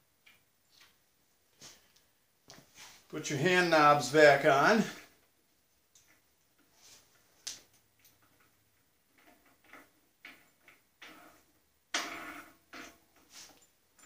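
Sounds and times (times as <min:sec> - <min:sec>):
metal scrape: 0:11.0 - 0:13.7.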